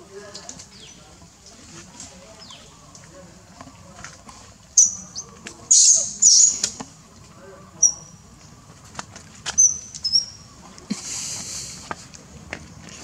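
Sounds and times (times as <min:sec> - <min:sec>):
baby monkey squealing: 0:04.8 - 0:06.8, 0:09.6 - 0:10.4.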